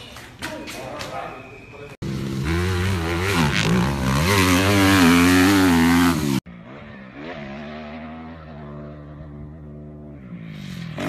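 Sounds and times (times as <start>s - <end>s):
dirt bike engine running steadily: 2.0s - 7.0s
dirt bike engine revving: 2.0s - 11.0s.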